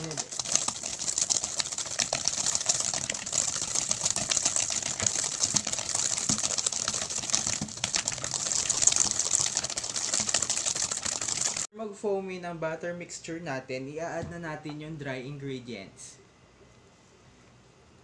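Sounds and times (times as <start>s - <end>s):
whisk clattering in metal bowl: 0.0s - 11.7s.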